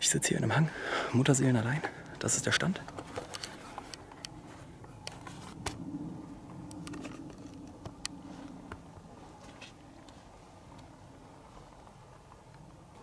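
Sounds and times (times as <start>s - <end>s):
camera handling rustling: 2.9s - 4.4s.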